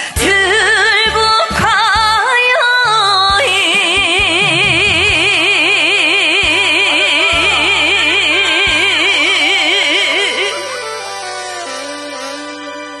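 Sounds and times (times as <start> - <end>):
woman singing with vibrato: 0.0 - 6.9
band accompaniment: 4.2 - 13.0.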